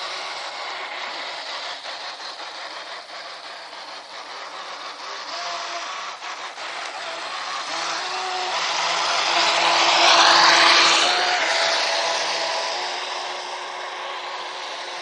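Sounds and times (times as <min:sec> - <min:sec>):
hull and spray hissing: 0:00.0 - 0:15.0
speedboat motor whine: 0:04.9 - 0:15.0.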